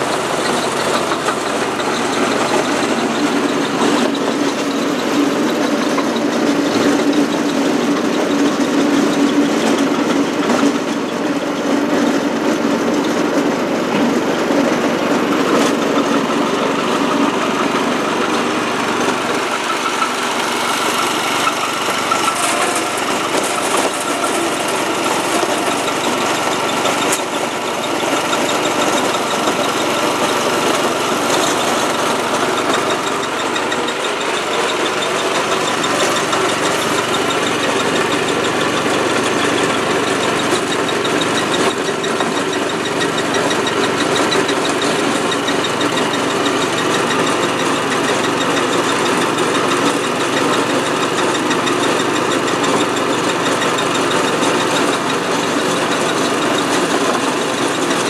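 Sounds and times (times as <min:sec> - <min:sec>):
jaw crusher crushing rock: 0:13.9 - 0:58.0.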